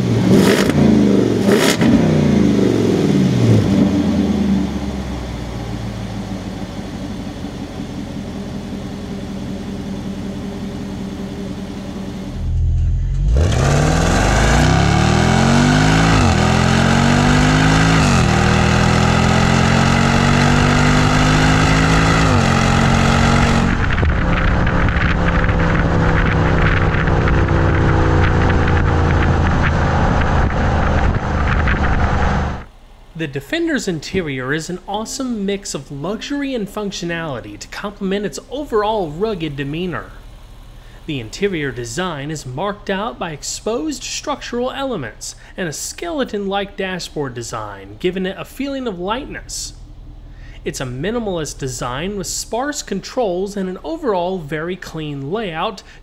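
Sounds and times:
engine accelerating with upshifts: 0:00.0 - 0:33.2
engine idling: 0:02.1 - 0:15.5, 0:36.0 - 0:43.8, 0:46.8 - 0:52.6.

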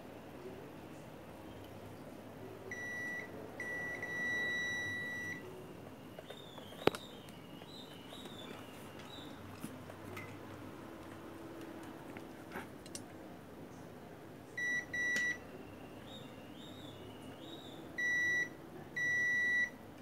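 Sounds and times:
multimeter beeping: 0:02.7 - 0:05.5.

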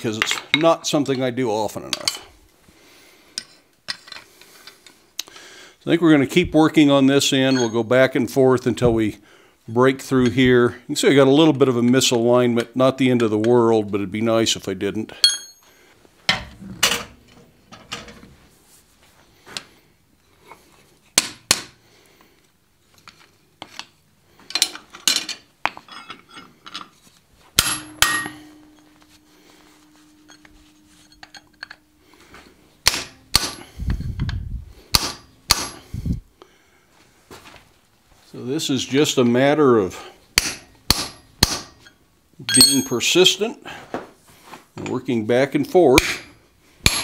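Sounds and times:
hammer striking chisel on steel: 0:27.6 - 0:31.9, 0:32.8 - 0:33.8, 0:34.9 - 0:35.9, 0:40.4 - 0:43.1, 0:46.0 - 0:47.0.

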